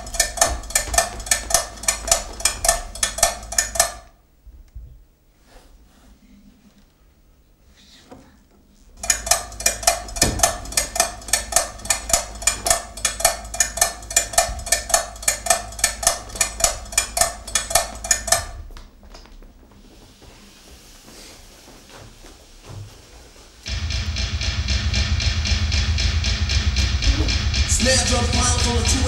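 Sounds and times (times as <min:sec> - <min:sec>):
clock ticking: 0:00.0 - 0:04.1, 0:09.0 - 0:18.6.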